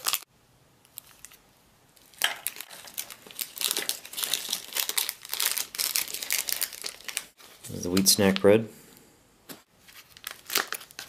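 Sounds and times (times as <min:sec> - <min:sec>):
plastic packets crinkling: 0:00.0 - 0:00.2, 0:02.0 - 0:08.4, 0:09.8 - 0:11.0.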